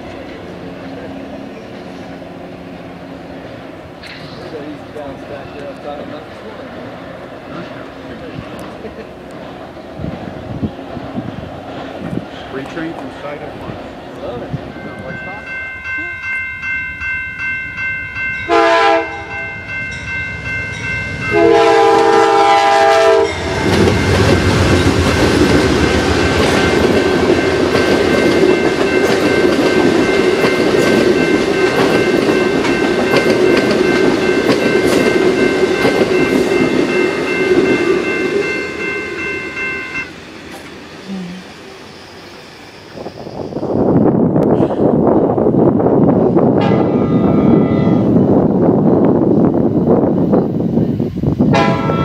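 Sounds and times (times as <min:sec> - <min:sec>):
train cars rumbling past: 0:00.0 - 0:52.0
crossing bell ringing: 0:14.2 - 0:44.1, 0:51.6 - 0:52.0
train horn blasts: 0:18.5 - 0:19.5, 0:21.2 - 0:23.7, 0:46.6 - 0:48.2, 0:51.5 - 0:52.0.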